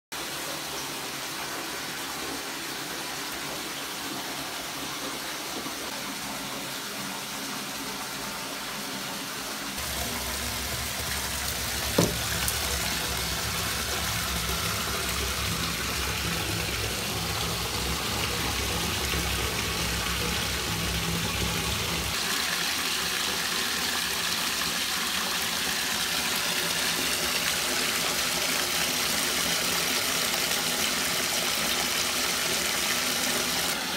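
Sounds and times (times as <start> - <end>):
bath bomb fizzing in water: 9.8 - 21.7.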